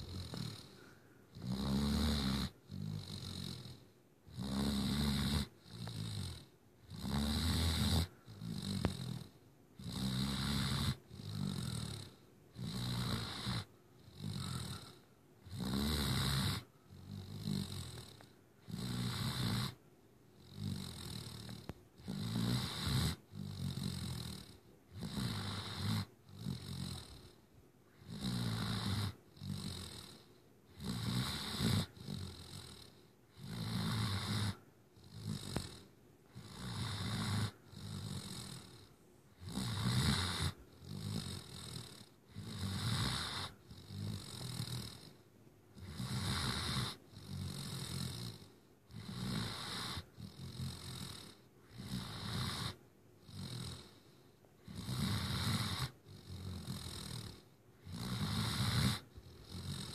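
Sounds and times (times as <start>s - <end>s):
puppy snoring: 0.0s - 59.9s.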